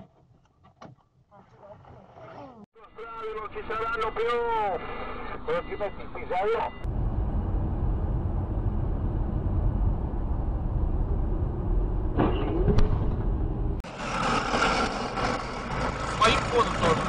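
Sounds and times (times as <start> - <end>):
traffic noise: 2.8 - 17.0
car road and engine rumble: 3.3 - 17.0.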